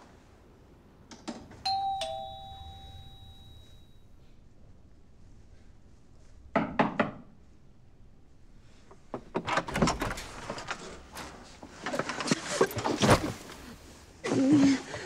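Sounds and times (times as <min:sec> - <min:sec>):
door opening: 0:08.7 - 0:13.7.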